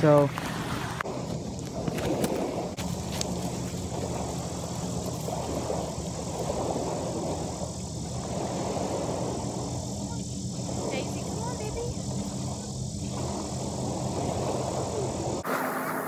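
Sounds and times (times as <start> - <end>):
small waves washing on rocks: 0.0 - 15.7
wind: 0.0 - 16.0
low engine hum: 0.1 - 16.0.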